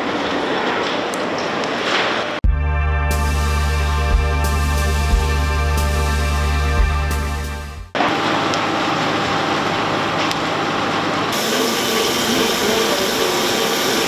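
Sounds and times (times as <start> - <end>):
electronic background music: 2.4 - 8.0.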